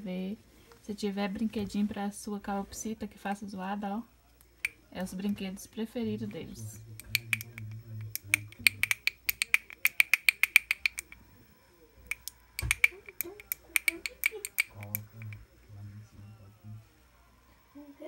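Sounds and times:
pellet drum rattling clicks: 0:08.2 - 0:11.2.

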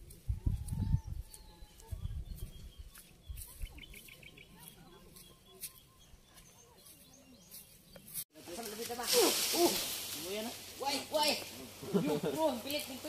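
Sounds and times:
footsteps through grass: 0:00.0 - 0:13.0
birds chirping: 0:00.7 - 0:08.6.

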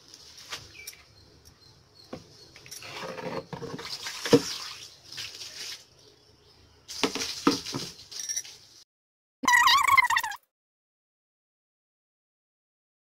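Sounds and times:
water splashing onto stone floor: 0:03.7 - 0:06.0, 0:06.9 - 0:08.8.

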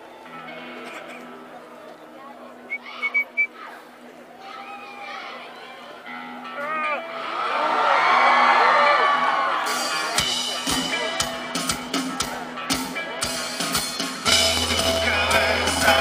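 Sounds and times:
rock band playing: 0:06.3 - 0:16.0
audience cheering: 0:07.2 - 0:10.3
drum kit beat: 0:09.7 - 0:16.0.

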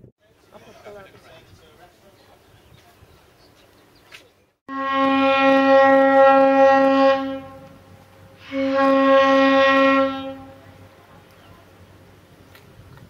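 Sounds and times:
ship's horn blasts: 0:04.7 - 0:11.0.

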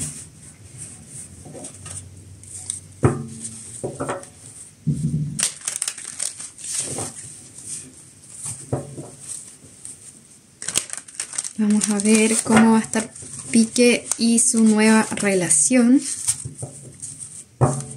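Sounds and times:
cards rustling while shuffled: 0:05.4 - 0:08.6, 0:10.6 - 0:17.9
card piles tapping: 0:11.7 - 0:15.6.

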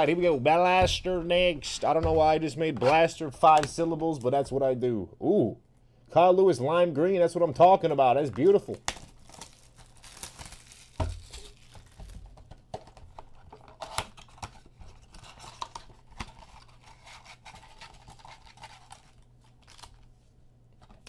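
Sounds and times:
wrappers crinkling and tearing: 0:08.4 - 0:12.4, 0:13.8 - 0:20.2
cards scraping: 0:12.9 - 0:20.1.

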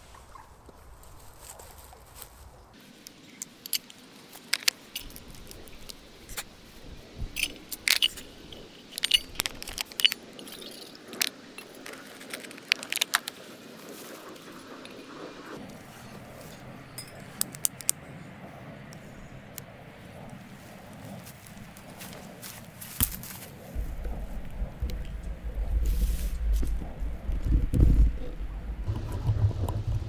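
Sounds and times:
metal camping gear clinking: 0:03.3 - 0:05.3, 0:07.3 - 0:13.4, 0:16.9 - 0:17.9.

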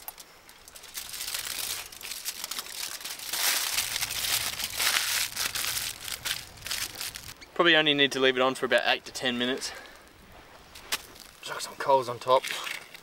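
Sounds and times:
aluminium foil crinkling: 0:00.0 - 0:07.4, 0:10.7 - 0:11.5.

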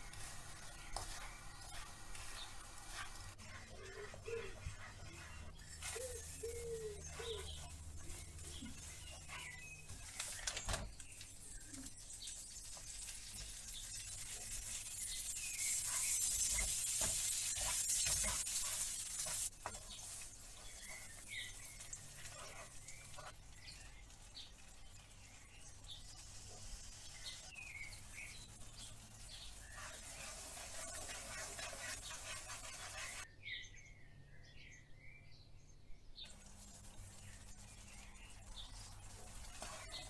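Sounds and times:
caramel sizzling in a pan: 0:00.0 - 0:04.0, 0:11.0 - 0:33.3, 0:36.3 - 0:40.0
wooden spoon stirring and scraping: 0:00.0 - 0:10.4, 0:11.1 - 0:33.3, 0:36.3 - 0:40.0.

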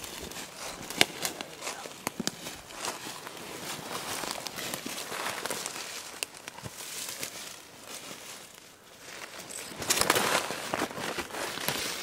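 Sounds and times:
footsteps crunching dry leaves: 0:00.0 - 0:12.0.

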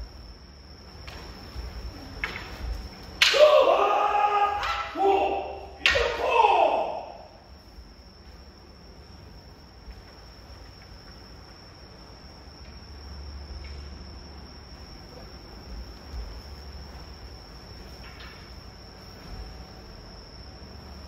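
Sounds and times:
low room rumble: 0:00.0 - 0:21.0
soft thuds: 0:15.7 - 0:20.0.

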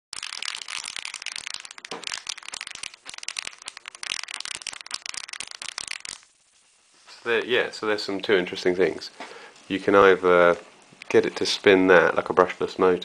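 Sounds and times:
pulse motor crackling rattle: 0:00.1 - 0:06.3.

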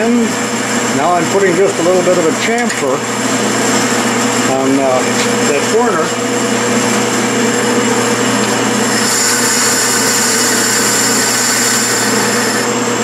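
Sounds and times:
metal lathe running: 0:06.8 - 0:13.0
high whine: 0:08.3 - 0:13.0.

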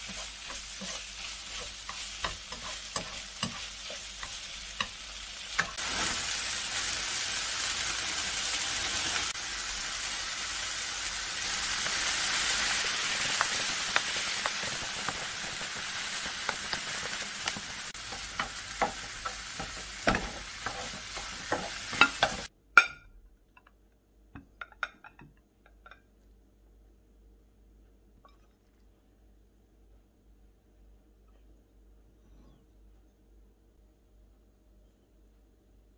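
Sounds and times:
utensils knocking and scraping a pan: 0:00.0 - 0:05.8, 0:13.3 - 0:23.0
food sizzling in a frying pan: 0:00.0 - 0:22.5.

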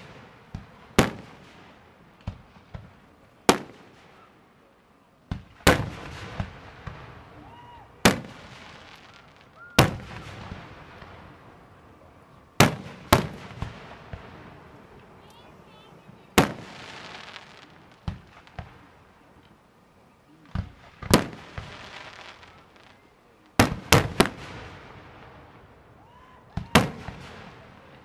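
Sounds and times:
small firework pops: 0:00.0 - 0:04.3, 0:05.3 - 0:11.2, 0:16.4 - 0:19.6, 0:20.4 - 0:24.7, 0:26.1 - 0:28.0.

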